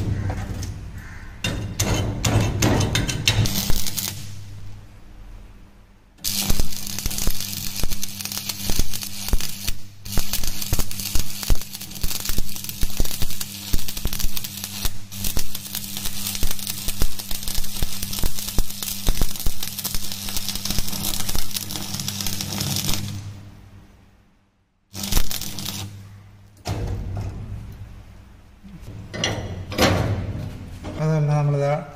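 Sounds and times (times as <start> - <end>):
welding arc crackling: 2.8 - 4.8, 6.2 - 23.7, 24.9 - 26.2.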